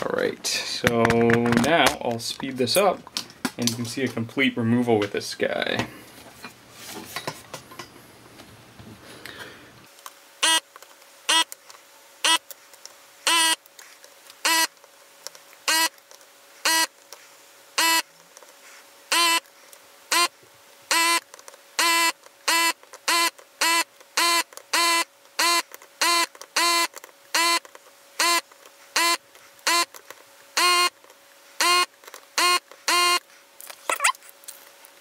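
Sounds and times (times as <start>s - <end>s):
desoldering gun vacuum pump buzz: 10.4s - 10.6s, 11.3s - 11.6s, 12.2s - 12.5s, 13.2s - 13.7s, 14.4s - 14.7s, 15.6s - 16.0s, 16.6s - 16.9s, 17.8s - 18.1s, 19.1s - 19.5s, 20.1s - 33.3s.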